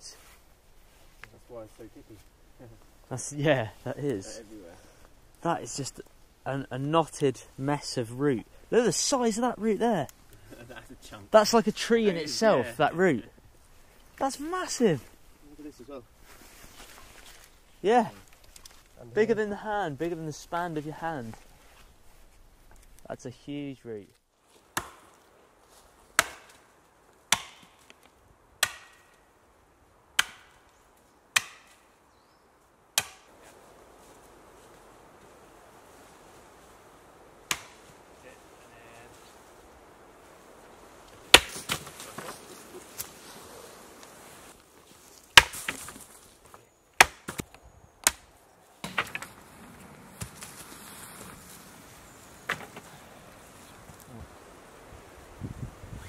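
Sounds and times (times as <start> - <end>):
axe chopping wood: 24.8 - 25.1, 26.2 - 26.6, 27.3 - 27.8, 28.6 - 29.1, 30.2 - 30.6, 31.3 - 31.8, 33.0 - 33.3, 37.5 - 37.8, 41.3 - 42.3, 45.3 - 46.0, 47.0 - 49.3.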